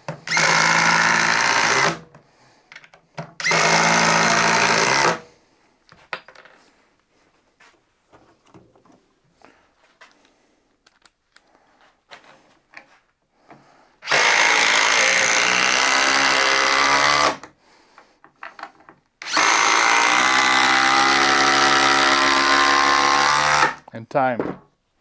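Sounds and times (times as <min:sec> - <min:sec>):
impact driver driving screw: 0:00.1 - 0:02.1, 0:03.4 - 0:05.2, 0:14.0 - 0:17.5, 0:19.2 - 0:23.8.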